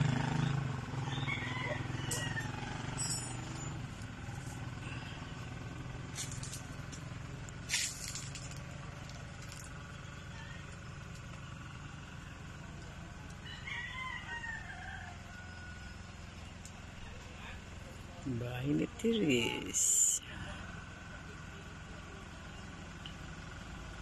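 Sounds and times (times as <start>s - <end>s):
rooster crowing: 0.9s - 3.6s, 13.3s - 16.5s
low background rumble: 3.0s - 22.6s.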